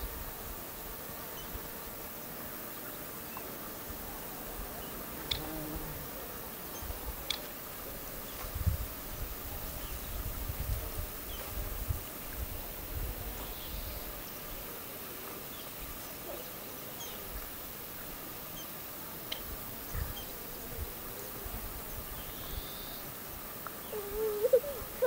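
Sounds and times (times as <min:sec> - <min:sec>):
faint outdoor hiss: 0:00.0 - 0:25.0
insect buzzing: 0:00.0 - 0:25.0
short wavering call: 0:23.8 - 0:25.0.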